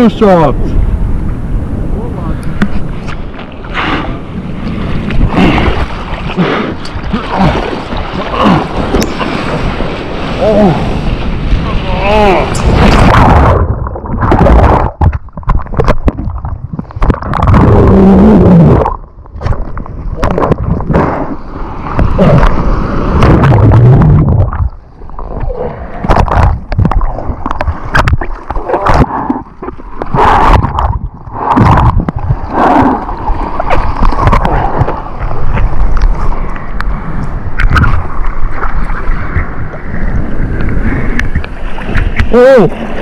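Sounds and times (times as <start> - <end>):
seawater sloshing and splashing: 2.6 - 18.0, 18.8 - 36.8.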